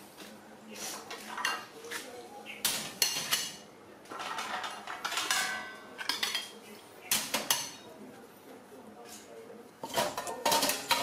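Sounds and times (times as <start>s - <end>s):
steel trays and bowls clattering: 3.0s - 7.8s, 9.8s - 11.0s.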